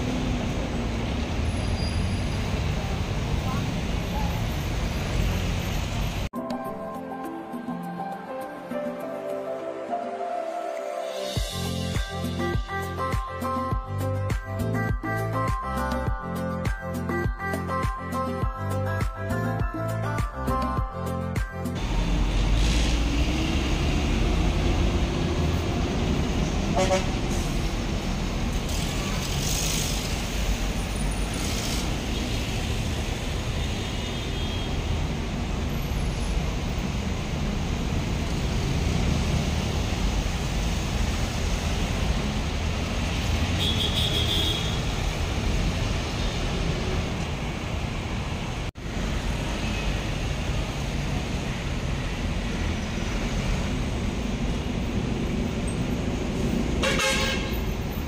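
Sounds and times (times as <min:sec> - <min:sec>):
traffic engine rumble: 0:00.0 - 0:06.4, 0:20.5 - 0:58.0
vehicle horn toot: 0:26.8 - 0:27.2, 0:33.7 - 0:34.8, 0:43.6 - 0:44.9, 0:56.8 - 0:57.7.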